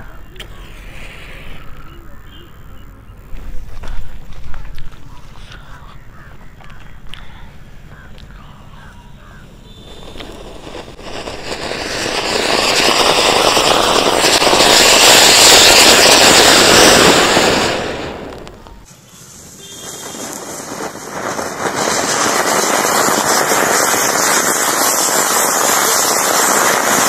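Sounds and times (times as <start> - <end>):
firework fountain hissing sparks: 0.0 - 2.6, 9.5 - 27.0.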